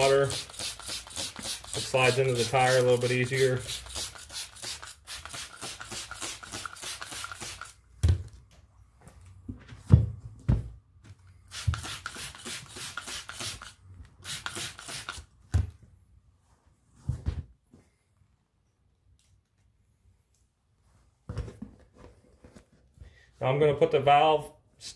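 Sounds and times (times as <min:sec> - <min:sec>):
spray bottle hissing squirts: 0:00.0 - 0:02.9, 0:03.6 - 0:07.8, 0:11.5 - 0:15.2.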